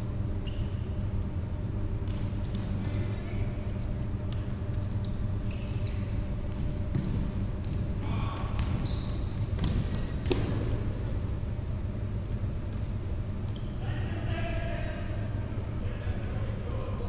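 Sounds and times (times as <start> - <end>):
steady low hum: 0.0 - 17.0
sneakers squeaking: 0.1 - 1.2, 2.0 - 10.9, 12.0 - 14.2
ball kicks: 8.4 - 10.8.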